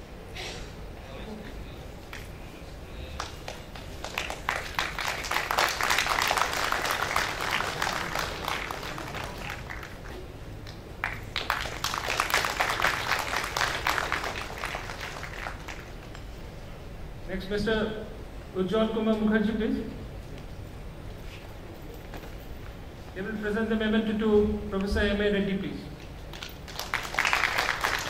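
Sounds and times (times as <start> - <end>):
audience applauding: 3.1 - 16.4, 26.3 - 28.0.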